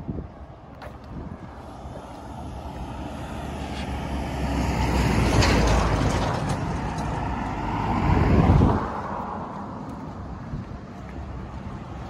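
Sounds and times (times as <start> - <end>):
vehicle driving past: 1.6 - 10.2.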